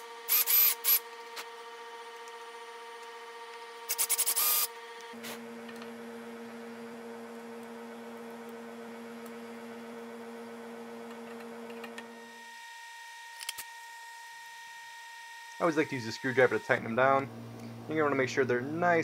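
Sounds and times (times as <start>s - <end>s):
electrical hum: 0.0s - 14.2s, 15.4s - 19.0s.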